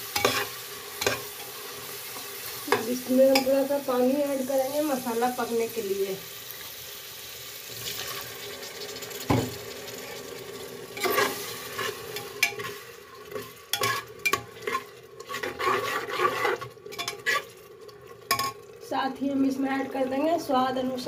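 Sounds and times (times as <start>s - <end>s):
masala hissing and sizzling: 0.0s - 21.0s
metal ladle scraping and clinking: 11.0s - 17.5s.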